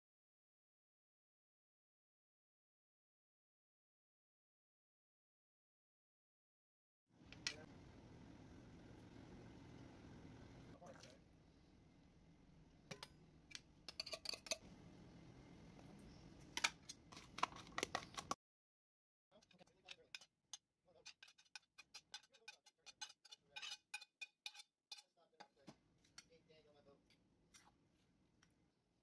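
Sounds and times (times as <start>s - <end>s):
ingredients clinking in metal bowl: 12.9s - 14.7s, 21.0s - 26.3s.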